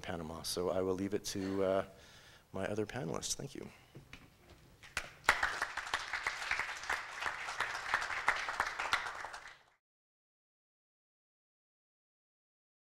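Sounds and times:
audience applauding: 4.8 - 9.8.

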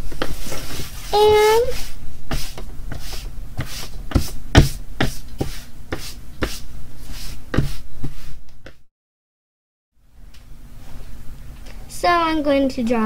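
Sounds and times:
hand sweeping across paper: 0.2 - 8.4.

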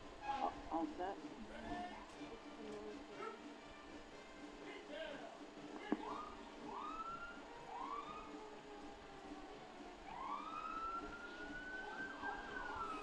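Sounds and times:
emergency vehicle siren: 6.0 - 13.0.

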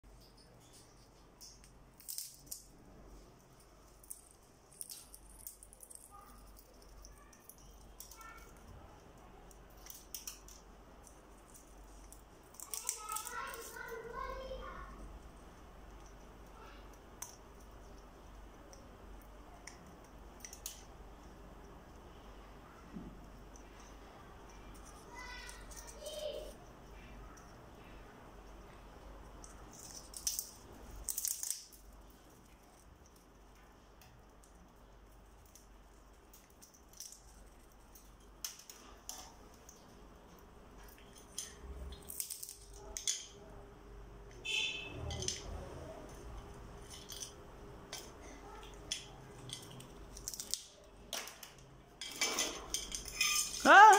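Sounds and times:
parrot beak cracking peanut shell: 1.4 - 2.7, 9.5 - 13.8, 29.4 - 31.8, 40.9 - 43.3, 46.9 - 51.5
nuts rattling against metal bowl: 52.0 - 53.9.

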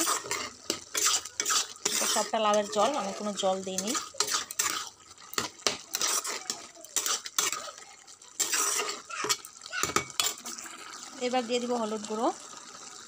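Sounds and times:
spatula scraping and clinking pan: 0.0 - 7.8, 8.4 - 10.6.

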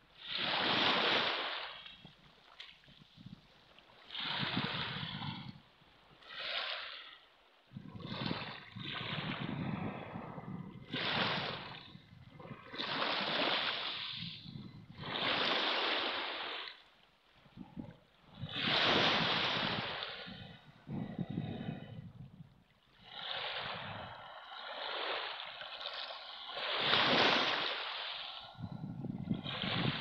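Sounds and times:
waves washing up pebble beach: 0.2 - 1.9, 4.1 - 5.2, 12.6 - 16.8, 18.4 - 20.4, 23.0 - 28.6, 29.2 - 30.0.

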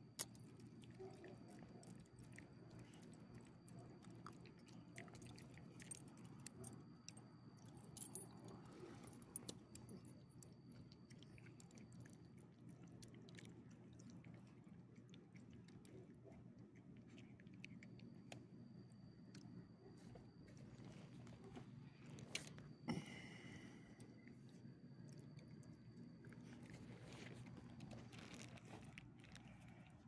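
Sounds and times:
collar tag tinkling: 7.8 - 8.5.

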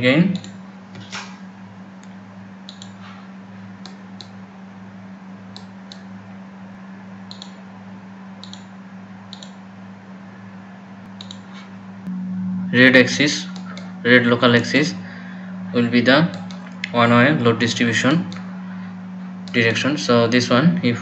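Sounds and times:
low electrical hum: 0.0 - 21.0
computer mouse clicks: 2.7 - 3.0, 7.3 - 7.6, 8.4 - 8.7, 9.3 - 9.6, 11.2 - 11.6.

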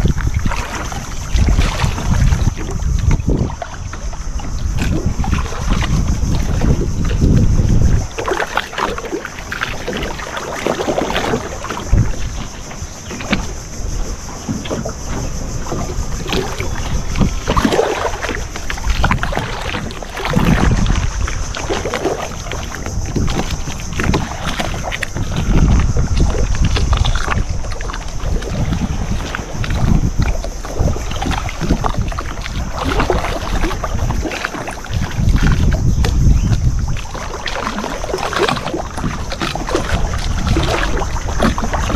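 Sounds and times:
wind gusting on microphone: 0.0 - 41.9
knocks on boat: 9.8 - 41.9.

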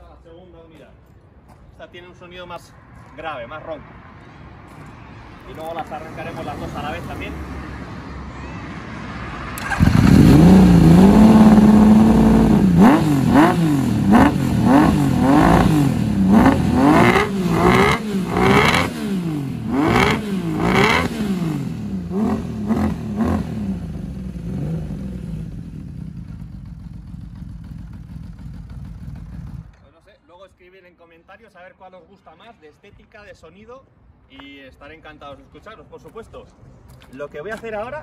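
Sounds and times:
motorcycle engine revving: 9.6 - 29.7.

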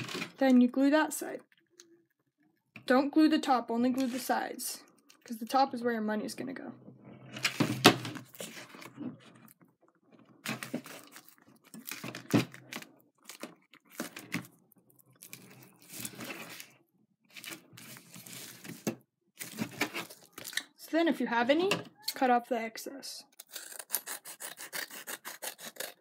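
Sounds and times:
paper crinkling and rustling: 7.4 - 9.6, 10.4 - 20.6.

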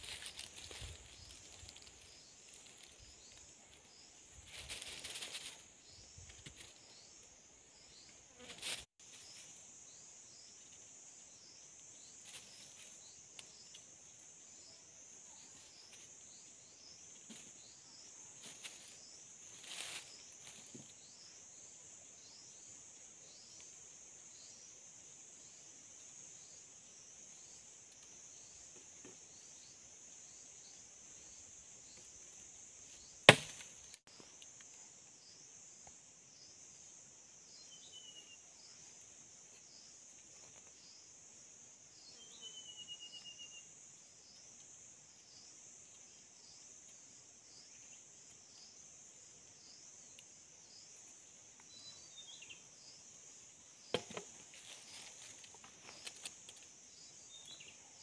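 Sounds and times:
insect drone: 0.0 - 58.0
knife cutting a stick: 33.3 - 33.7
machete chopping wood: 33.3 - 33.7, 53.9 - 54.3.

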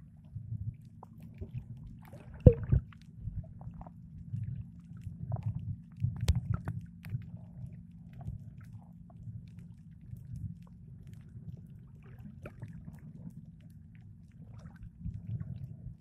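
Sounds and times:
low underwater rumble: 0.0 - 16.0
underwater clicks and knocks: 1.1 - 4.0, 5.3 - 7.3.

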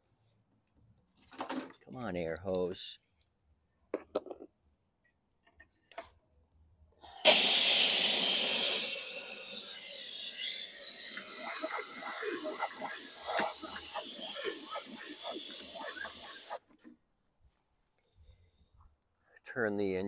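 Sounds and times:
compressed air hissing: 7.2 - 16.6
water spluttering: 10.5 - 16.6.

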